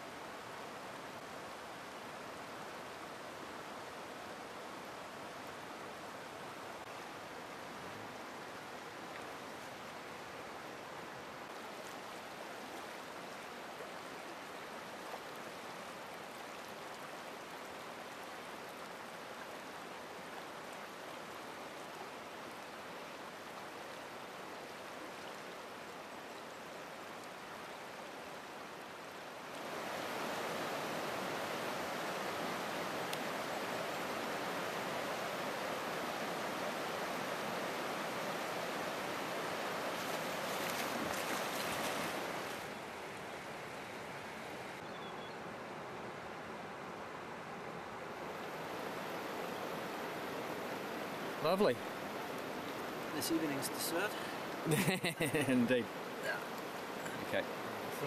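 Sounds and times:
river running over stones: 0.0 - 58.0.

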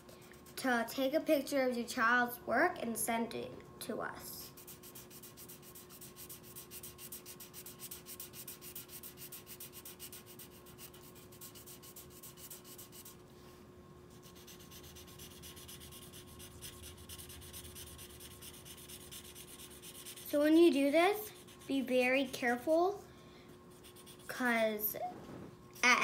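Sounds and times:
marker scribbling on paper: 4.6 - 13.2, 14.2 - 22.6, 23.7 - 24.5.

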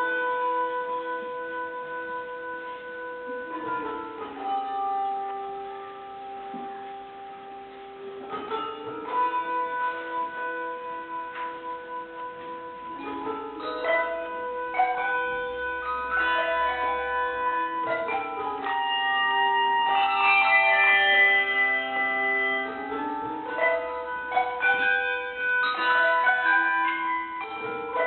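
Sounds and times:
handbell choir ringing chords: 8.5 - 28.0.

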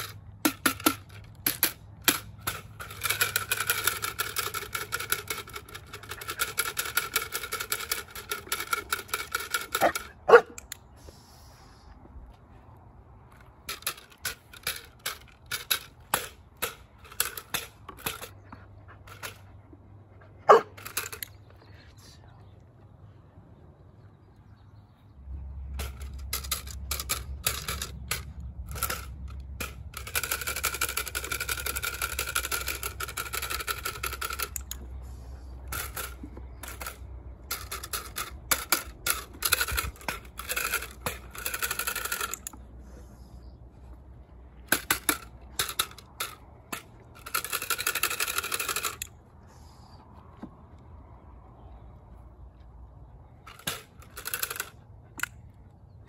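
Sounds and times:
wooden clatter stick clacking: 0.0 - 10.8, 35.6 - 42.7.

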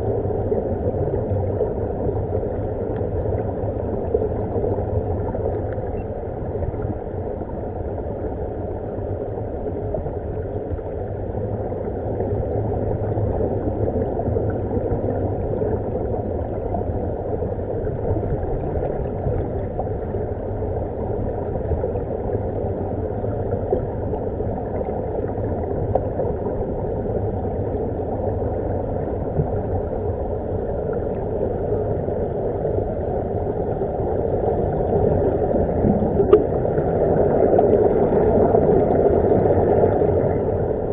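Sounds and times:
muffled underwater rumble: 0.0 - 40.9
air bubbling underwater: 34.5 - 40.9.

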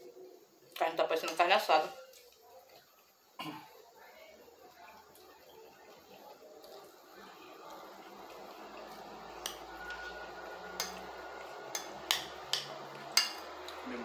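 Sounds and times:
fork scraping a plate: 8.8 - 13.8.

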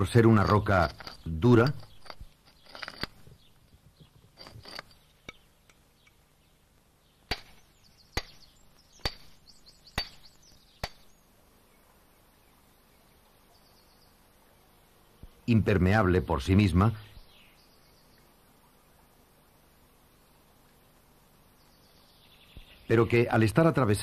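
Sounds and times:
hammer striking stone: 7.3 - 7.6, 8.2 - 8.4, 9.0 - 9.4, 10.0 - 11.1.

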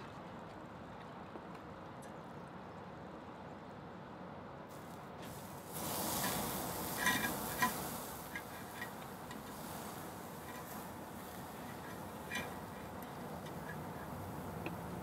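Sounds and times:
meat sizzling on grill: 4.7 - 15.0
metal tongs clinking on grill: 6.0 - 14.9.

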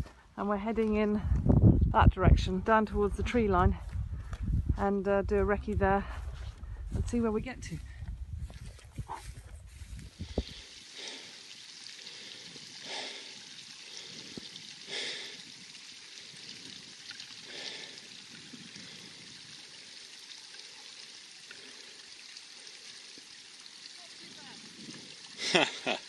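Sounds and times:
person breathing hard: 10.1 - 15.4, 17.4 - 18.1.

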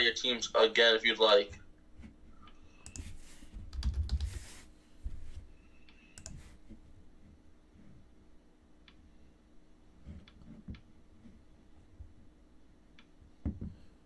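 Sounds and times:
keyboard keystrokes and clicks: 3.7 - 4.3.

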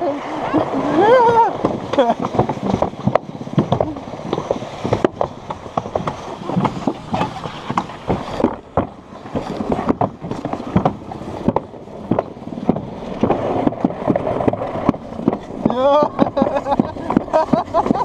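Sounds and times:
sled knocking and clattering: 0.0 - 18.0
sled rumbling on track: 0.0 - 18.0.

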